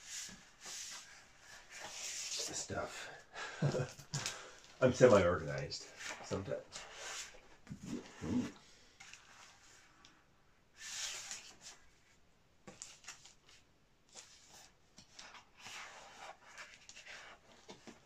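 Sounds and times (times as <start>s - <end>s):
paper rustling and swishing: 10.8s - 11.8s.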